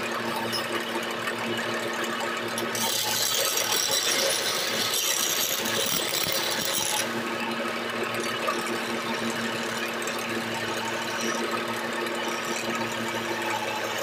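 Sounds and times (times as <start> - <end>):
lathe motor humming: 0.0 - 8.2
chisel scraping spinning wood: 2.4 - 7.2.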